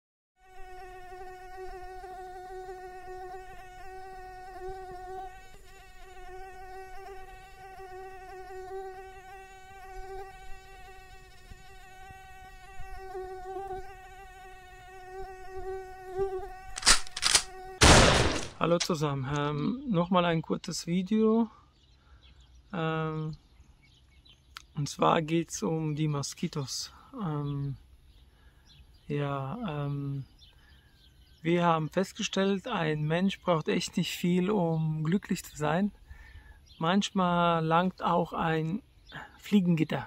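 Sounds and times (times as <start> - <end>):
mosquito whining: 0.4 - 17.8
sharp smacks: 16.8 - 19.0.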